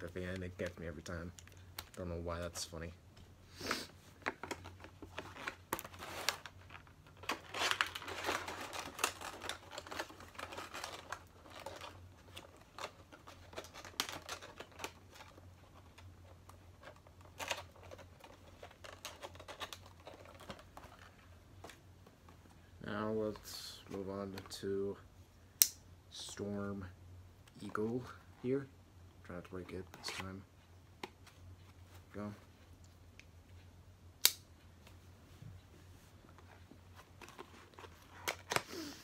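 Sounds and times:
packaging crinkling and rustling: 4.2s - 21.8s.

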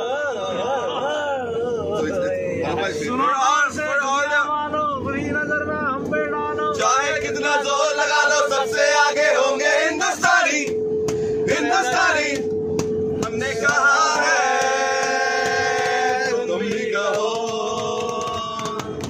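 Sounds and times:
steady low hum: 0.0s - 19.0s
men singing together: 6.4s - 10.8s, 11.4s - 12.5s, 13.2s - 19.0s.

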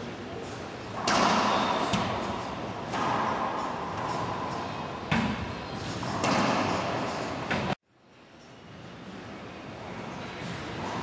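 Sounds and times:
racquetball hitting racquets and walls: 0.9s - 7.8s.

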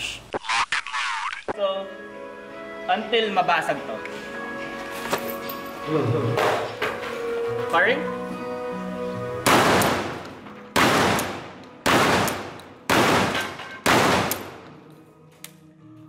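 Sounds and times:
shotgun shots echoing: 9.4s - 14.9s.

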